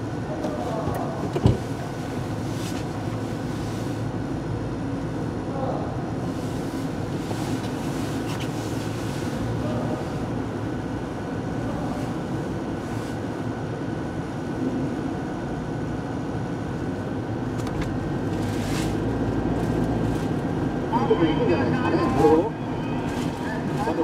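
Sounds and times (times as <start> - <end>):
low mechanical drone: 13.5 - 24.0
car engine: 13.7 - 24.0.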